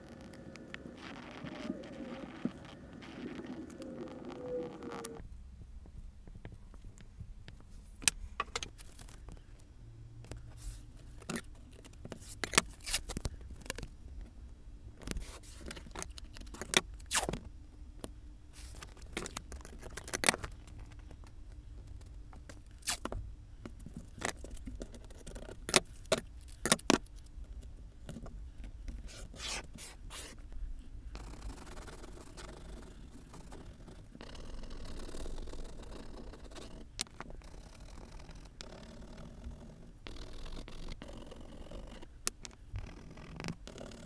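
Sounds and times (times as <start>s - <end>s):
oil pastel scratching: 0.0s - 5.2s, 15.1s - 17.4s, 18.5s - 21.0s, 22.0s - 23.1s, 28.9s - 30.6s, 31.2s - 44.0s
masking tape ripping: 16.5s - 17.4s, 22.8s - 23.1s.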